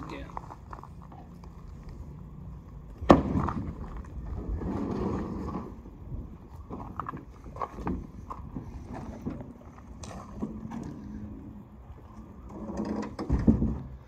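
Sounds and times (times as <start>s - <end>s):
low thud: 3.0s - 3.8s.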